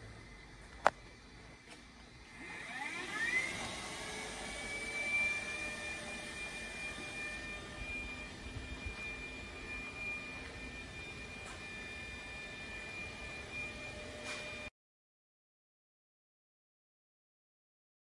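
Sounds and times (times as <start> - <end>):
drill motor whining: 2.1 - 14.7.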